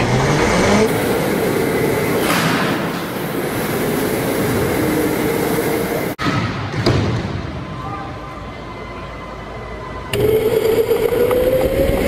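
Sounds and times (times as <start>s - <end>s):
electric go-kart motor whine: 10.1s - 12.0s.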